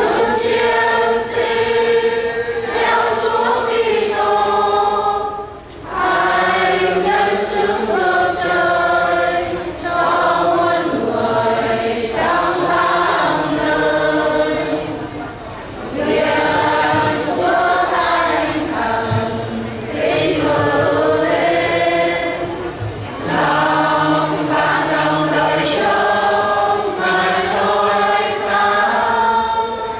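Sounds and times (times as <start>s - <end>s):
choir singing a hymn: 0.0s - 29.9s.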